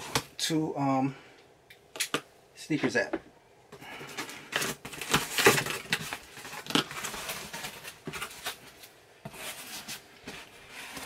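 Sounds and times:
cardboard box crackling and rustling: 4.5s - 11.0s.

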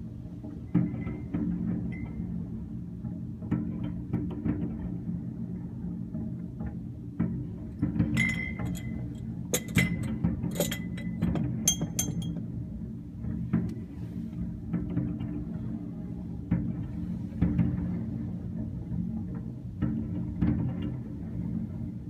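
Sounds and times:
low background music: 0.0s - 22.0s
glassware clinking: 8.2s - 12.4s.

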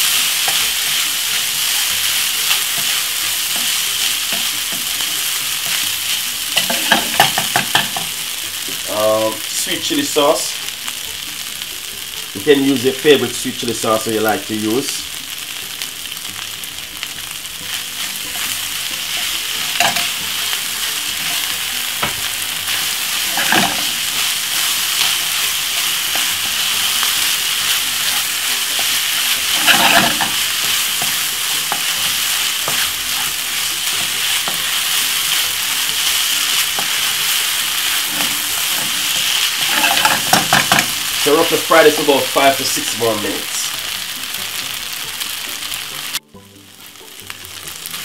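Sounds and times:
rice sizzling in a frying pan: 0.0s - 48.0s
wooden spoon scraping a pan: 20.8s - 35.4s, 36.0s - 41.5s.

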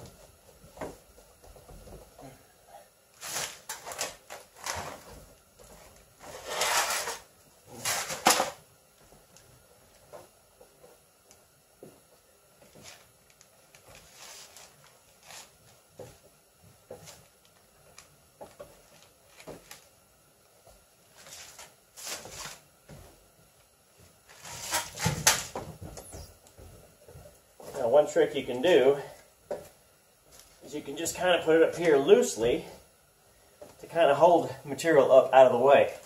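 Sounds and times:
scuffing rustles: 23.9s - 30.7s.

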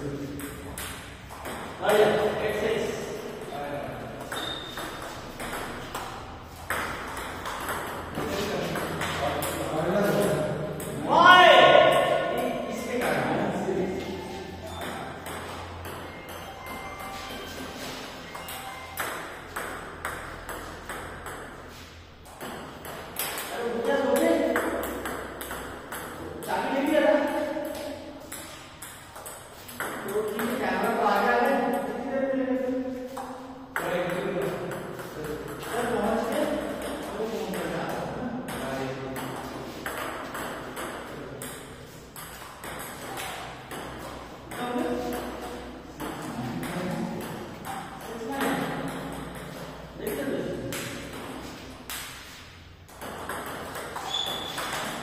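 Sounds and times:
table tennis ball bouncing: 0.3s - 32.1s, 33.1s - 55.0s
person speaking: 8.1s - 15.3s, 23.5s - 25.1s, 26.2s - 28.4s, 29.7s - 40.0s, 44.4s - 51.5s.

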